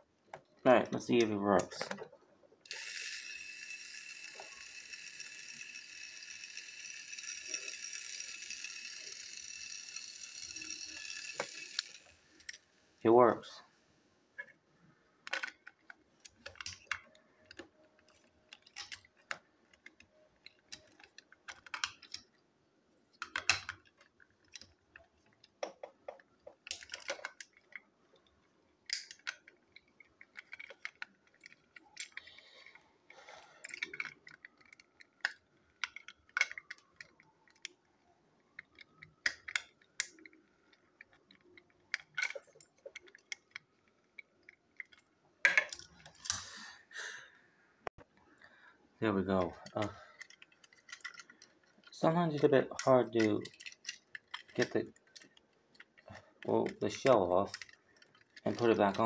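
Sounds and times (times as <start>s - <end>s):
plastic toy train clicks and snaps: 2.6s - 12.6s, 23.2s - 24.7s, 28.9s - 32.2s, 33.6s - 37.8s, 38.6s - 40.4s, 52.7s - 59.0s.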